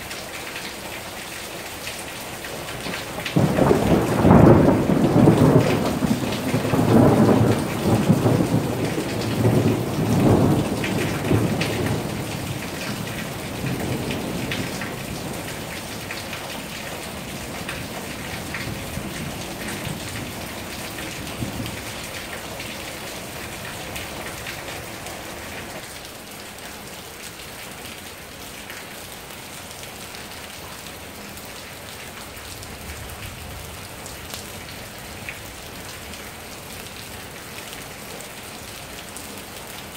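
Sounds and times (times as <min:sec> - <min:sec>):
rain on wet pavement: 0:00.0 - 0:39.9
thunder rolling: 0:03.4 - 0:15.6.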